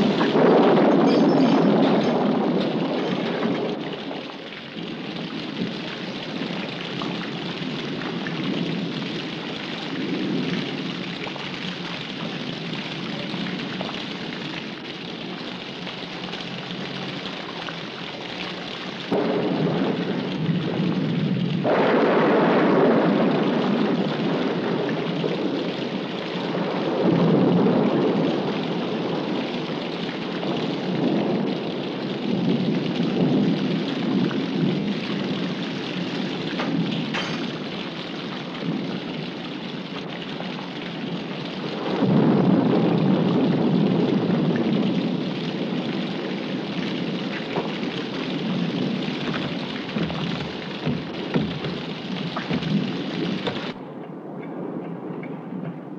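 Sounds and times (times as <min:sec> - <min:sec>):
sharp thunder crack: 0:00.0 - 0:11.3, 0:19.0 - 0:39.4, 0:40.9 - 0:53.8
heavy rain pouring: 0:00.0 - 0:55.9
thunder rumbling: 0:00.0 - 0:55.9.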